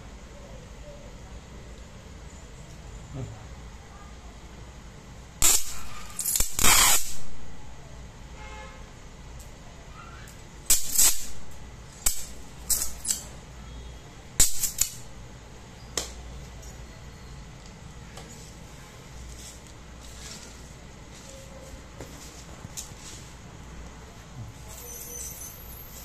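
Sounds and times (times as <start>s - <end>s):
probe crackling on metal: 5.4s - 7.3s.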